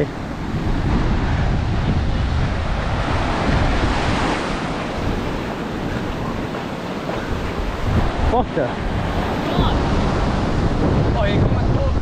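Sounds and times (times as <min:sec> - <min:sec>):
waves breaking on beach: 0:00.0 - 0:12.0
wind buffeting microphone: 0:00.0 - 0:12.0.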